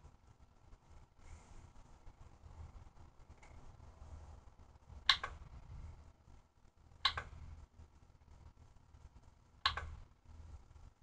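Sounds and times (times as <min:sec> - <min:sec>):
faint low hum: 0:00.0 - 0:11.0
mouse button clicks: 0:09.6 - 0:10.0.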